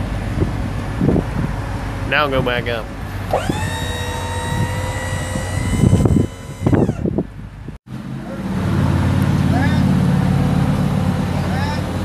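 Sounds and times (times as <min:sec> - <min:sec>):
low engine hum: 0:00.0 - 0:12.0
hydraulic pump motor whining: 0:03.1 - 0:07.4.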